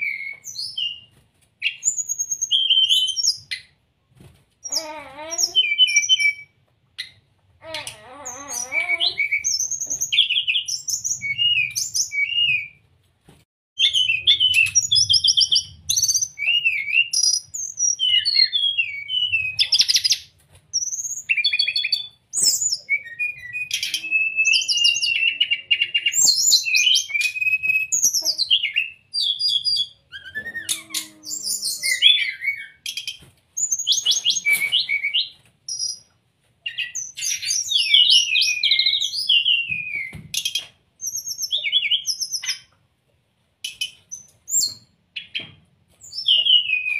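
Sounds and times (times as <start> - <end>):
bird singing whistled phrases: 8.3 - 12.8, 13.8 - 20.2, 20.8 - 36.0, 36.7 - 42.7, 46.1 - 46.9.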